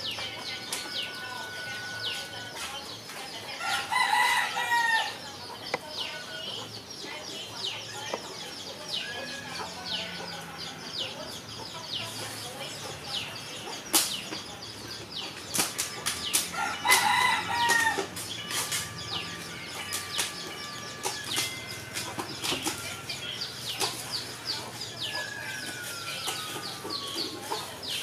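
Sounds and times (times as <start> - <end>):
chickens peeping and clucking: 0.0 - 28.0
rabbits crunching pellets: 0.0 - 28.0
rooster crowing: 3.6 - 5.2, 16.5 - 18.1, 25.0 - 27.4.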